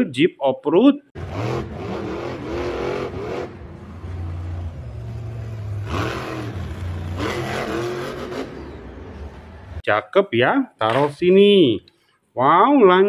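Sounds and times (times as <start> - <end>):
monster truck engines revving: 1.2 - 9.8.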